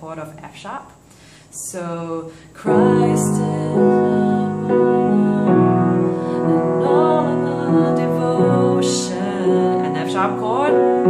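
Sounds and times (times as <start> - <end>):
woman singing: 1.6 - 11.0
piano playing sustained chords: 2.6 - 11.0.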